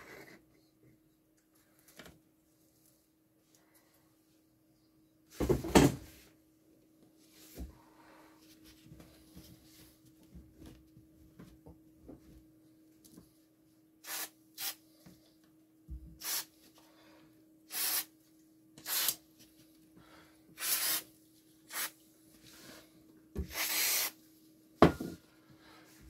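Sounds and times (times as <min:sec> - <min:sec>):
aerosol spray hissing: 0:14.0 - 0:14.8, 0:16.2 - 0:16.5, 0:17.7 - 0:18.1, 0:18.8 - 0:19.2, 0:20.6 - 0:21.0, 0:21.7 - 0:21.9, 0:23.5 - 0:24.2.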